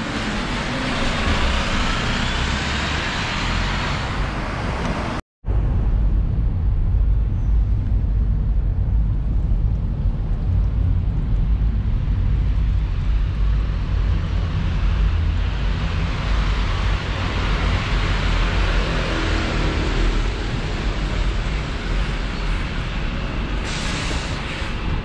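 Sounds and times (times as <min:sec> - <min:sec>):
bus approaching: 0:00.0 - 0:25.0
traffic rumble: 0:00.0 - 0:25.0.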